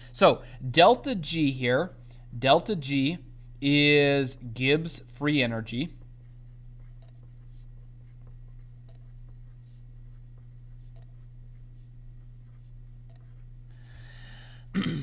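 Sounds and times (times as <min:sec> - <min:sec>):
steady low hum: 0:00.0 - 0:15.0
pen scratching on paper: 0:06.2 - 0:13.7.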